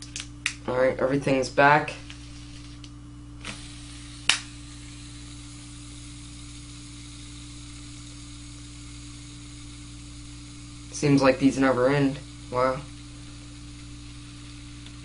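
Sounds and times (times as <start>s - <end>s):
reel spool whirring: 3.4s - 15.0s.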